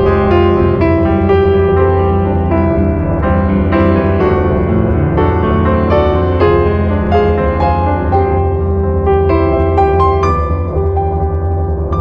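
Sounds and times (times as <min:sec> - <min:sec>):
gentle piano melody: 0:00.0 - 0:12.0.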